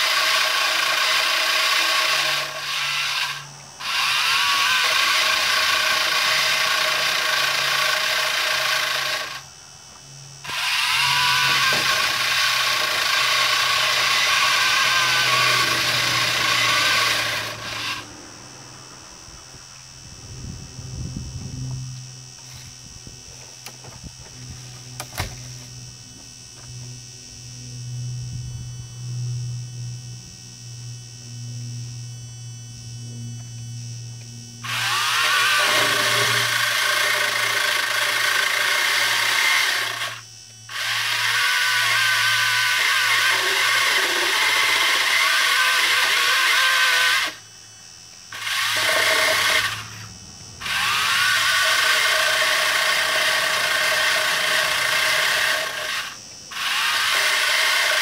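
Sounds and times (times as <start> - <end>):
chain saw cutting branch: 0.0 - 9.5, 10.4 - 18.2, 22.2 - 25.8, 34.6 - 47.4, 48.2 - 58.0.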